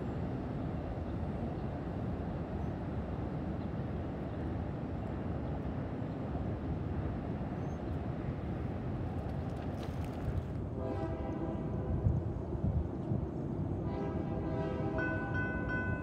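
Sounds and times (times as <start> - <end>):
railroad crossing bell ringing: 15.0 - 16.0.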